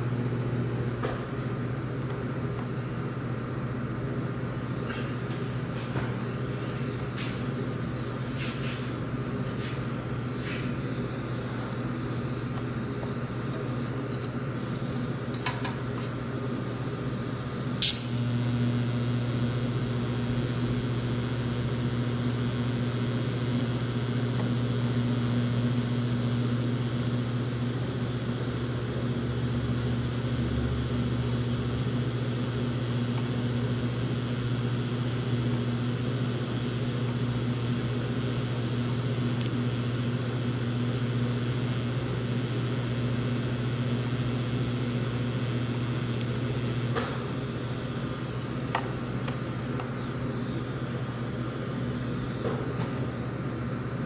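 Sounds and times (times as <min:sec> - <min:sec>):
welder humming: 0:00.0 - 0:54.0
welding arc snap: 0:17.6 - 0:26.2, 0:36.7 - 0:39.6, 0:43.9 - 0:53.2.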